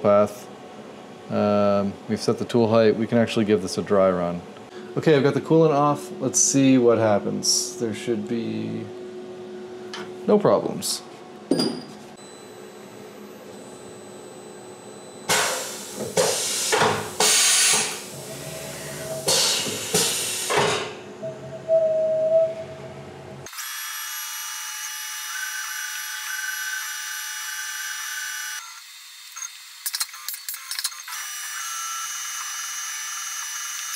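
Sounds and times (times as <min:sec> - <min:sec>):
cnc mill noise bursts: 0:15.3 - 0:20.7
cnc mill high-pitched whine: 0:17.5 - 0:20.5, 0:23.0 - 0:33.9.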